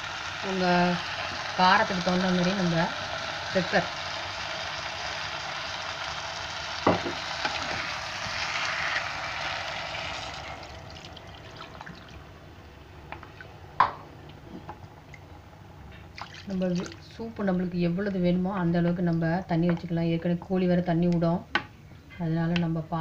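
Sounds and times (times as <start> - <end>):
chicken sizzling in hot oil: 0.0 - 12.3
water pouring into a pan: 0.1 - 12.2, 16.2 - 17.0.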